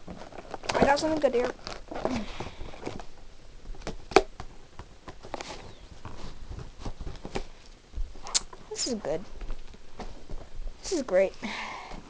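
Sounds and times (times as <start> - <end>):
plastic packaging snapping: 0.0 - 3.1, 3.7 - 5.6
plastic packaging clicking and rustling: 0.0 - 7.8.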